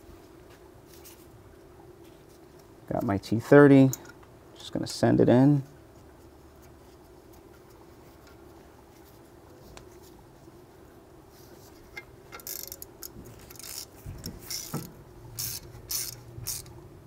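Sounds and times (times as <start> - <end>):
screw scraping: 11.8 - 16.7
ratchet clicks: 12.0 - 16.7.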